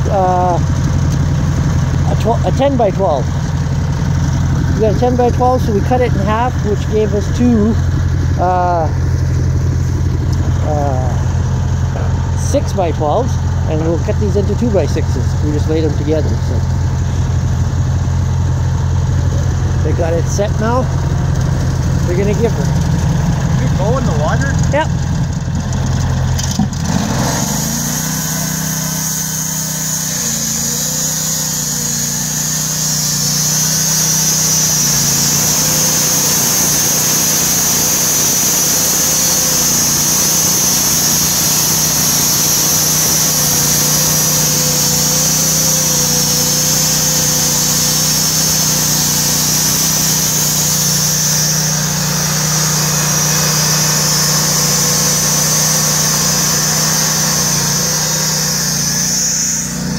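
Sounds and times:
gas engine running under load: 0:00.0 - 0:59.9
band blade hissing through log: 0:27.2 - 0:59.9.

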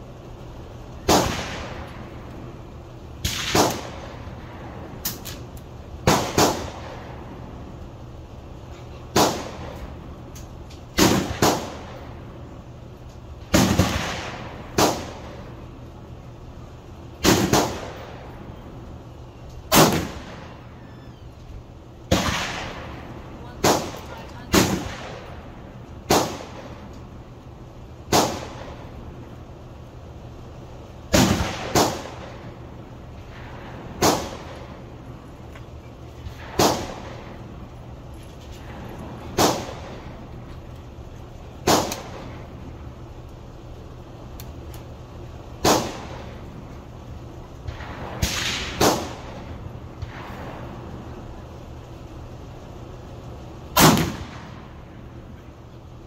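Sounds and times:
gunshots with echo: 0:03.3 - 0:04.0.

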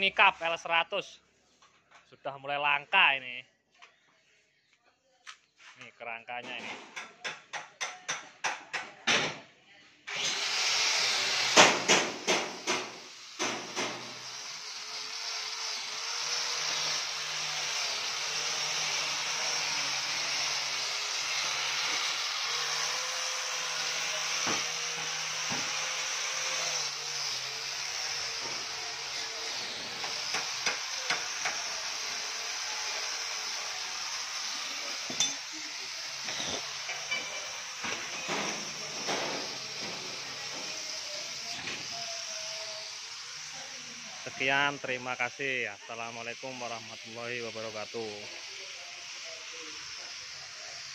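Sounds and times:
angle grinder wire brushing steel: 0:13.1 - 0:50.9.

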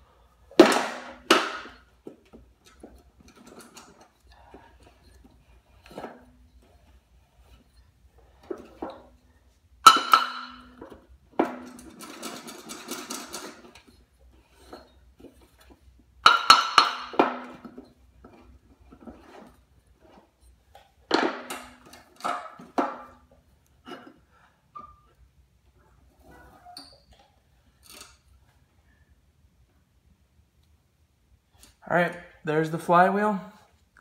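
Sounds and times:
metal rattling: 0:00.5 - 0:23.3.

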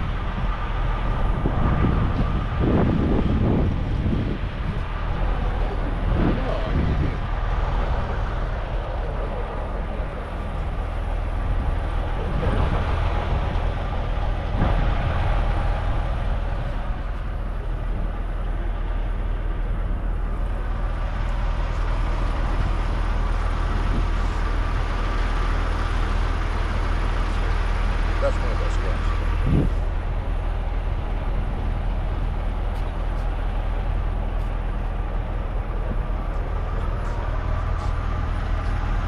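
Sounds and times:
low engine rumble: 0:00.0 - 0:39.0
outdoor background noise: 0:00.0 - 0:39.0.

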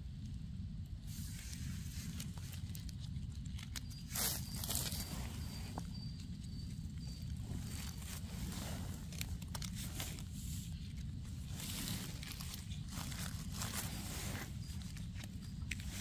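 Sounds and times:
footsteps in leaf litter: 0:04.1 - 0:05.9, 0:07.3 - 0:16.0.

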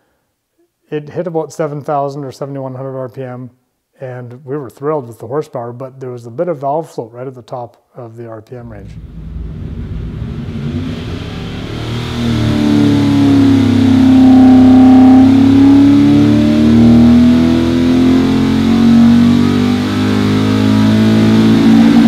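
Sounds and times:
engine revving under load: 0:08.6 - 0:22.0.

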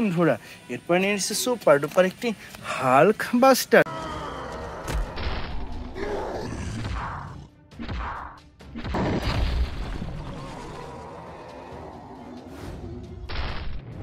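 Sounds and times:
music: 0:03.9 - 0:14.0.

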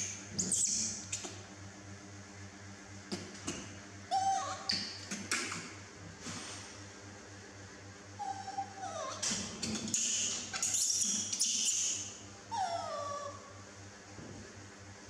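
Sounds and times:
baby monkey crying: 0:04.1 - 0:04.7, 0:08.2 - 0:09.2, 0:10.6 - 0:13.6.

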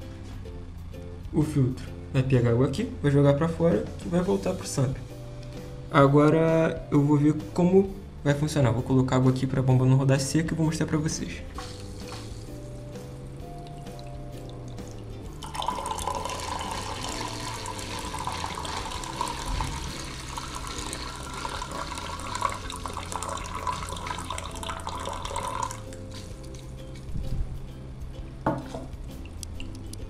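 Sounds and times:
water pouring and splashing: 0:11.6 - 0:12.6, 0:14.8 - 0:27.1.

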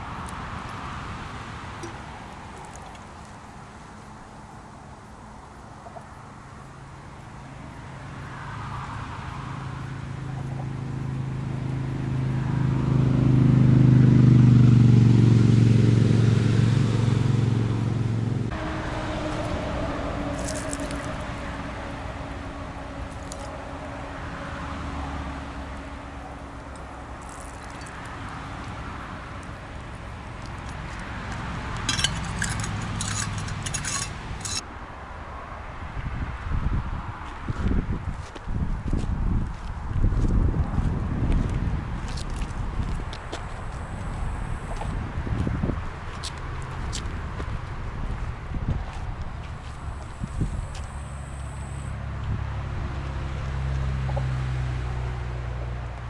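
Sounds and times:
vehicle engine hum: 0:00.0 - 0:56.0
light metallic clicks and jingles: 0:31.8 - 0:34.6.

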